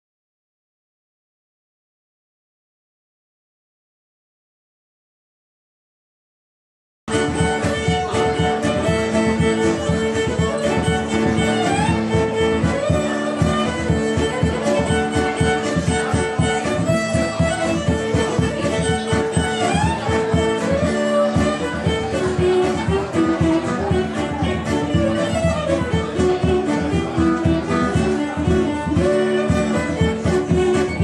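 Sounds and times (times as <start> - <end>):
fiddle melody: 7.1 - 31.0
frame drum beat: 7.1 - 31.0
strummed acoustic guitar: 7.1 - 31.0.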